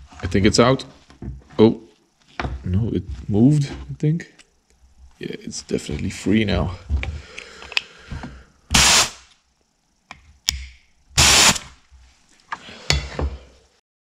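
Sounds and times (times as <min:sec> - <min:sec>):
short bursts of hiss: 0:08.7 - 0:09.3, 0:11.2 - 0:11.8.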